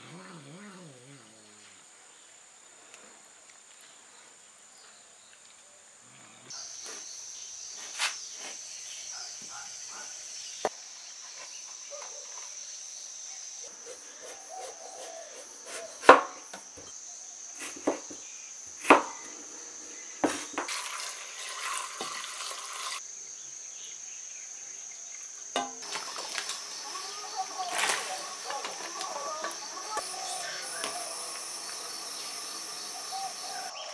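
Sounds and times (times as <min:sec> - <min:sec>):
cleaver chopping on wooden board: 0:15.7 - 0:16.4, 0:18.8 - 0:19.2
high-pitched insect drone: 0:25.4 - 0:33.9.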